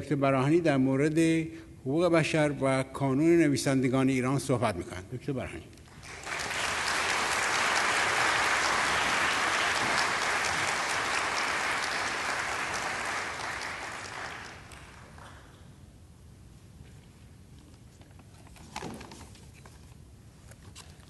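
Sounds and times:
audience applauding: 5.9s - 15.6s.

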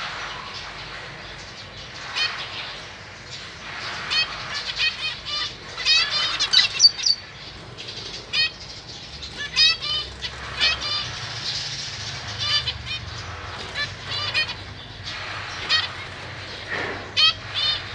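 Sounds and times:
finches calling: 4.1s - 17.9s
wings fluttering: 9.2s - 17.9s.

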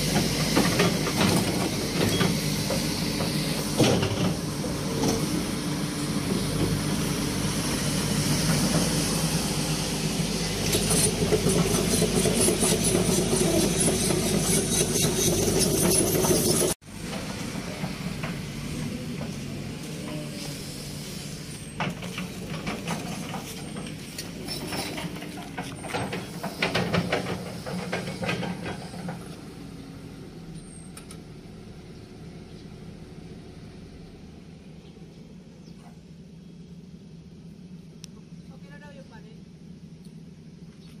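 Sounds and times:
excavator diesel engine running: 0.0s - 40.6s
metallic clanks and rattles: 21.8s - 29.3s.

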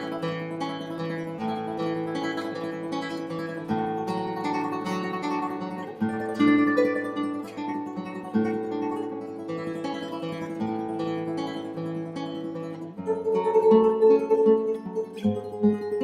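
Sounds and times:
acoustic guitar chords: 0.0s - 16.0s.

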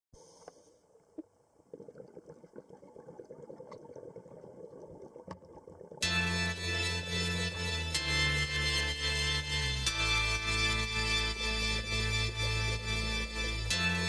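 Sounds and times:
organ music: 6.0s - 14.0s.

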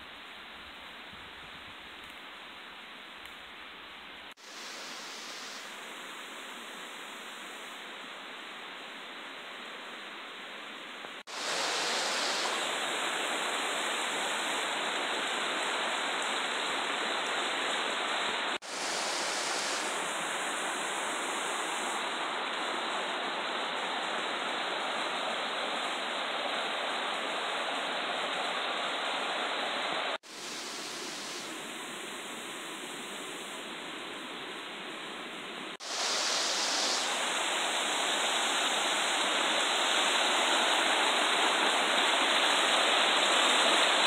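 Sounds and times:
stream rushing over rocks: 11.2s - 34.0s, 35.8s - 44.0s.

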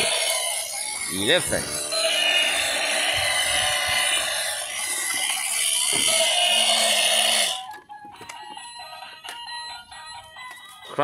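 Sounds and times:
toy harsh electronic noise: 0.0s - 7.8s.

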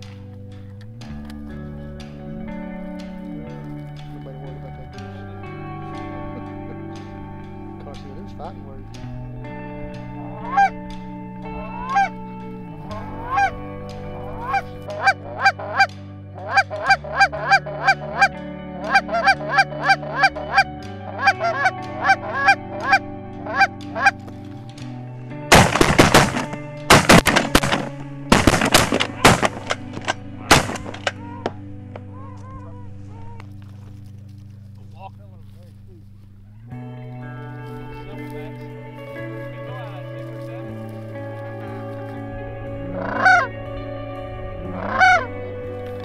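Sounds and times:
geese honking: 1.2s - 24.6s, 25.3s - 46.0s
shotgun shots: 25.5s - 31.2s.

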